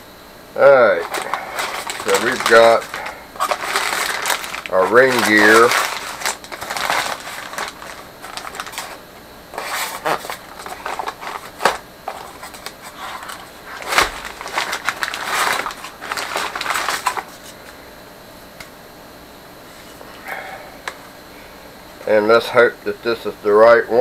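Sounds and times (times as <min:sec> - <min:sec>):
wrapping paper crinkling: 0:00.9 - 0:17.7.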